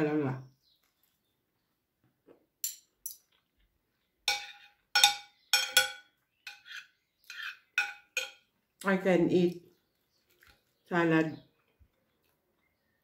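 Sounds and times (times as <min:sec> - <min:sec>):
cutlery clinking against a plate: 0:04.3 - 0:08.5.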